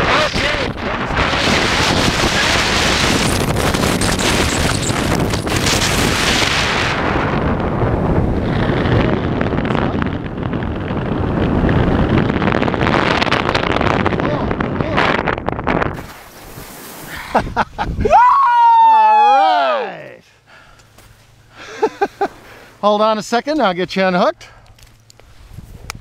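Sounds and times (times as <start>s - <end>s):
wind rushing over microphone: 0.0s - 19.2s, 25.1s - 26.0s.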